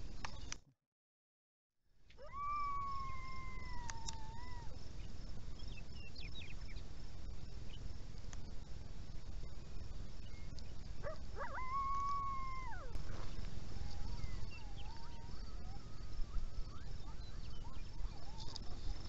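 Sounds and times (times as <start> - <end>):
coyote howling: 2.2 - 4.8, 11.0 - 13.0, 13.6 - 19.0
coyote yipping: 11.0 - 19.0.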